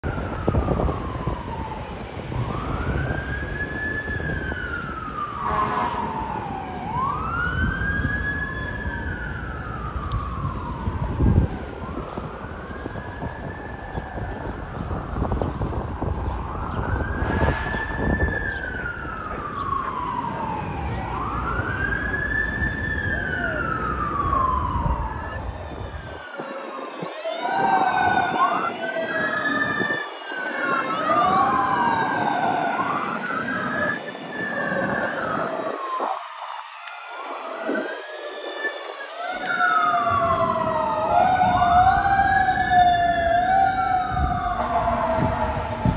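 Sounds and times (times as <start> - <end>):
city traffic: 0.0 - 45.9
fire truck siren wailing: 0.0 - 45.9
truck engine rumble: 17.9 - 26.4.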